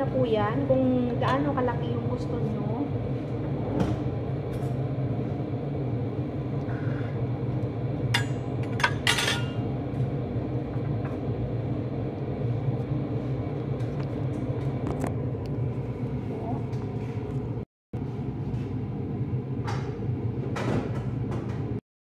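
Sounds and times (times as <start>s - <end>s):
low mechanical hum: 0.0s - 21.8s
kitchenware clinking: 8.2s - 9.6s.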